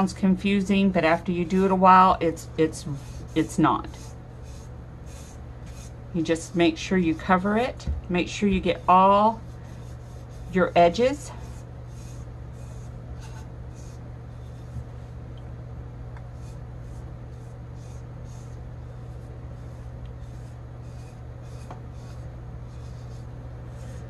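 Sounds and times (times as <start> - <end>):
soft rubbing on cup: 2.6 - 6.0, 8.6 - 15.2, 16.2 - 24.0.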